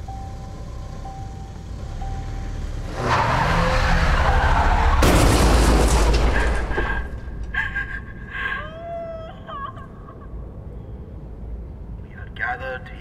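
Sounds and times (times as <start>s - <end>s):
high steady ringing tone: 0.0s - 2.6s
loud car crash: 2.9s - 7.5s.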